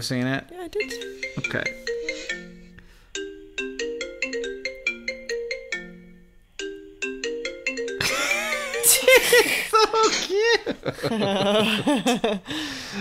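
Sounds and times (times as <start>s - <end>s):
xylophone melody: 0.6s - 9.7s.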